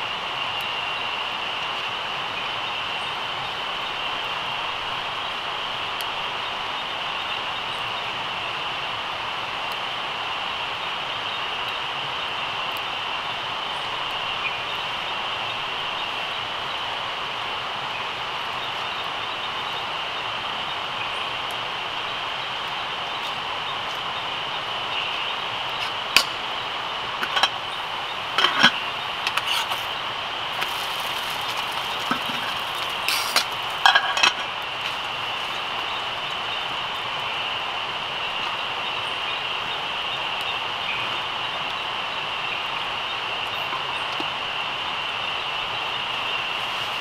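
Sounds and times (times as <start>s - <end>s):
night insects chirring: 0.0s - 47.0s
metal cup and utensils clinking: 27.2s - 27.6s, 28.4s - 29.9s, 30.6s - 34.5s.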